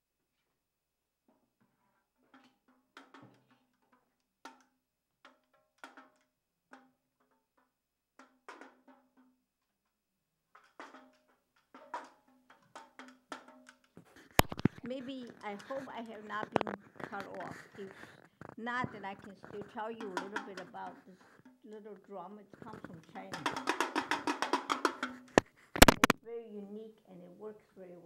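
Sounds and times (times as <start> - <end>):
small hand drum taps: 10.6 - 22.0, 22.6 - 26.2.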